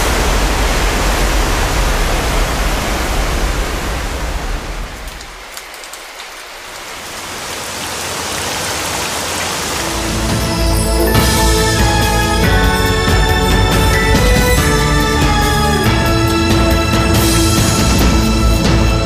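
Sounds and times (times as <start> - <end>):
spraying water hiss: 0.0 - 10.8.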